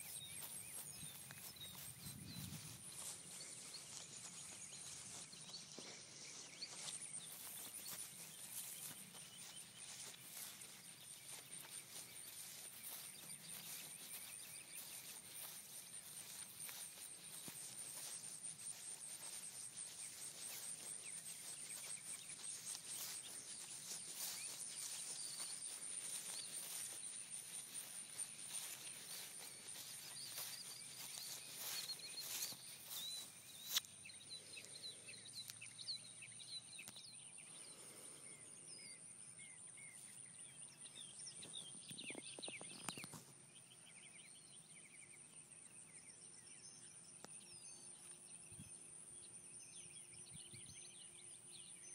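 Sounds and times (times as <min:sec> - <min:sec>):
rustling through vegetation: 0:00.0 - 0:34.0
bird chirps: 0:00.0 - 0:51.9.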